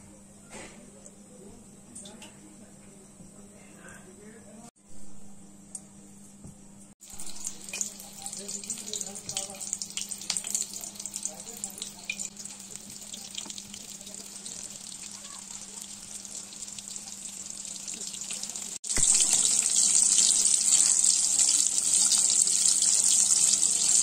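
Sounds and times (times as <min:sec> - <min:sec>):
chicken deep-frying in oil: 0:07.0 - 0:24.0.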